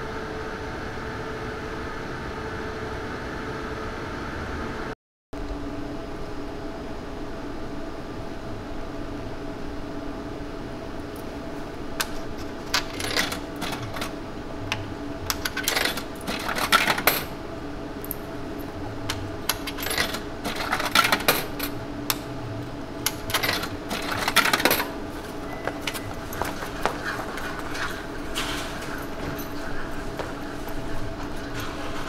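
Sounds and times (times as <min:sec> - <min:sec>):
machine humming: 0:00.0 - 0:32.0
coins clinking in a machine: 0:12.7 - 0:14.2, 0:15.3 - 0:17.4, 0:19.5 - 0:21.8, 0:23.0 - 0:26.4.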